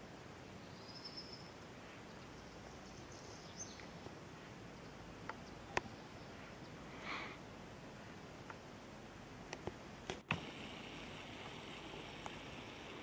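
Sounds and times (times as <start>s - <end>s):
steady low hiss: 0.0s - 13.0s
faint high bird calls: 0.6s - 7.4s.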